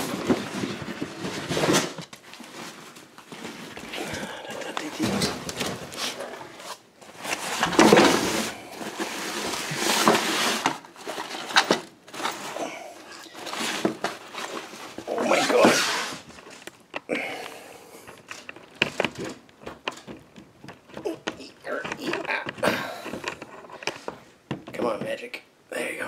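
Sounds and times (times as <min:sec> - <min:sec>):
cardboard scraping: 0:00.0 - 0:12.7, 0:13.3 - 0:16.6
objects shifted and knocked: 0:00.0 - 0:17.1, 0:18.0 - 0:25.3.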